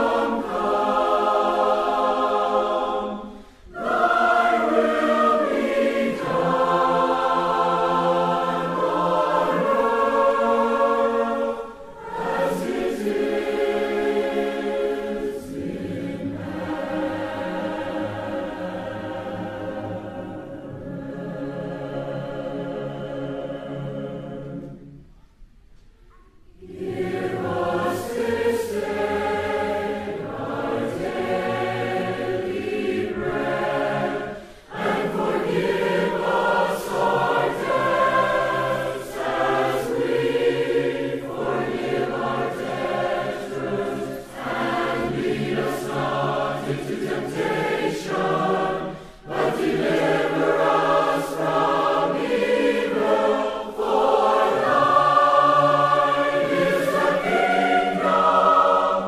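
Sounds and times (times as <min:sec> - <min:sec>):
choir singing: 0:00.0 - 0:25.2, 0:26.4 - 0:59.0
breaths between phrases: 0:34.4 - 0:34.7, 0:48.9 - 0:49.2.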